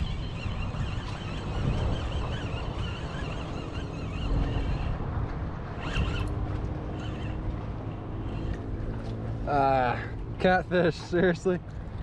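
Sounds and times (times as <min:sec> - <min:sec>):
fishing reel cranking: 0:00.0 - 0:05.0, 0:05.7 - 0:07.5, 0:08.2 - 0:08.7
wind buffeting microphone: 0:00.0 - 0:12.0.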